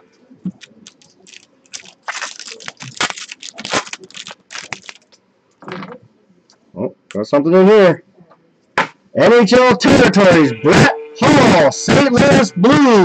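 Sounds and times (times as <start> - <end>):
foil wrapper tearing and crumpling: 0.5 - 5.2.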